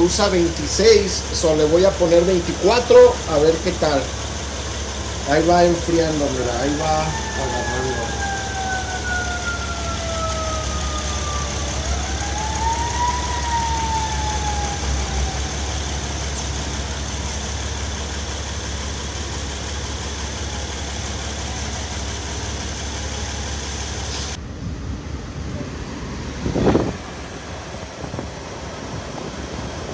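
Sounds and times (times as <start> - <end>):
car engine running with low hum: 0.0 - 12.7
emergency vehicle siren wailing: 0.0 - 24.1.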